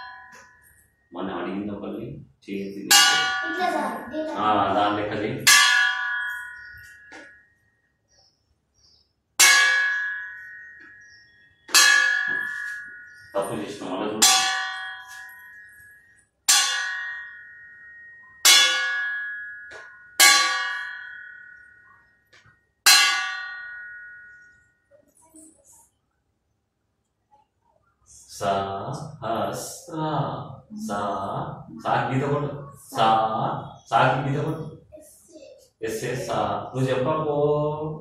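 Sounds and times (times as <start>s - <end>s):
metal rod striking steel plate: 2.9s - 3.6s, 5.5s - 7.3s, 9.4s - 13.2s, 14.2s - 15.4s, 16.5s - 21.7s, 22.4s - 24.3s.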